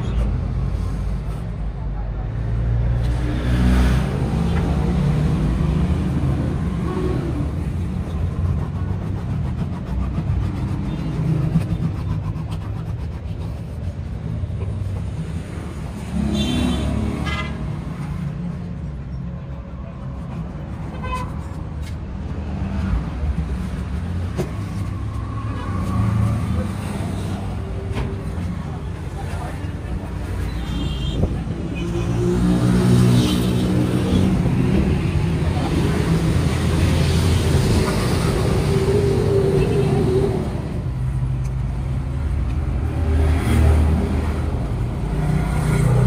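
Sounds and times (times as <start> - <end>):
traffic rumble: 0.0 - 46.0.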